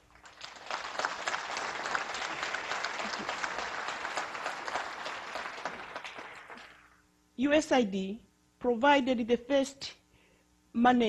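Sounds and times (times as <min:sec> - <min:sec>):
audience applauding: 0:00.0 - 0:07.0.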